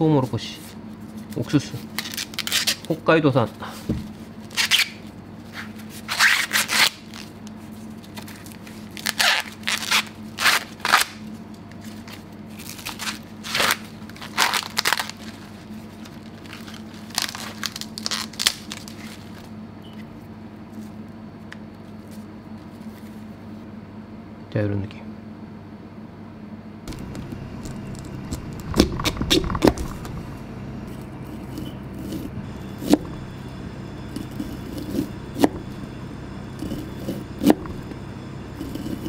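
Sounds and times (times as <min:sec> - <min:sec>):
corn husks ripping: 0:01.4 - 0:03.0, 0:06.1 - 0:11.2, 0:12.0 - 0:19.4.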